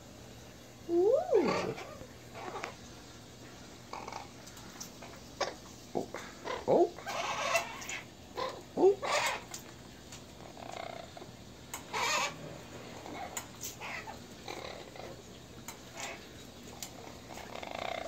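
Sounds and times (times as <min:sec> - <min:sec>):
parrot grunting: 0:01.0 - 0:02.8, 0:05.4 - 0:09.5, 0:10.4 - 0:11.3, 0:11.9 - 0:15.2, 0:17.3 - 0:18.0
parrot wings flapping and splashing: 0:09.2 - 0:18.0.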